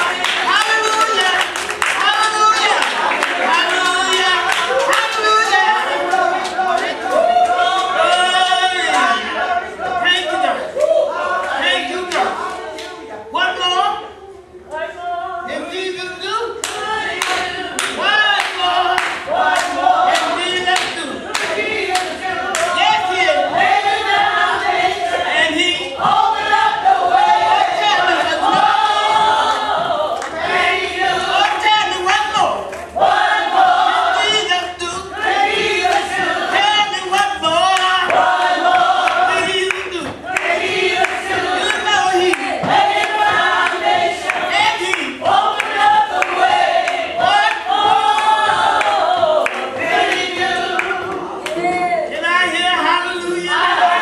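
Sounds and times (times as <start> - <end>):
hands clapping: 0.0 - 9.1, 10.8 - 13.0, 16.6 - 22.8, 28.4 - 30.4, 35.3 - 51.9
congregation singing gospel song: 0.0 - 54.0.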